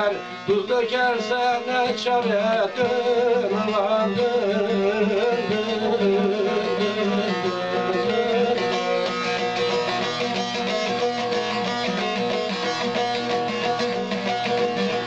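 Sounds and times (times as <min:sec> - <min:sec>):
plucked long-necked lute: 0:01.3 - 0:15.0.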